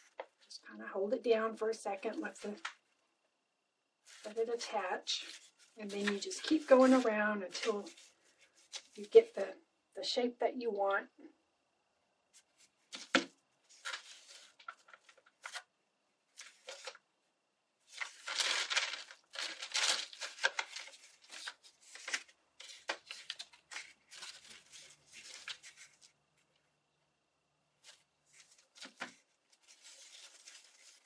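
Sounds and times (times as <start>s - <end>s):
paper rustling and crinkling: 4.0s - 9.4s, 12.4s - 15.7s, 16.3s - 17.0s, 17.8s - 26.6s, 27.8s - 31.0s.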